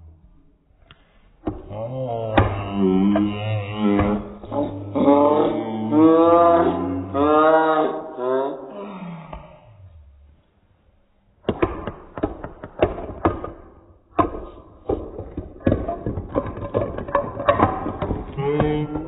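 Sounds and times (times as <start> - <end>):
marbles knocking on wooden track: 11.5 - 19.0.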